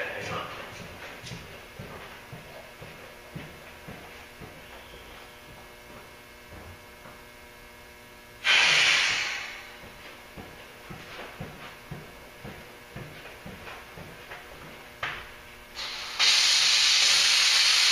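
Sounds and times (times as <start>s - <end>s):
steady electrical hum: 0.0s - 17.9s
compressed air hissing: 8.4s - 9.8s, 15.7s - 17.9s.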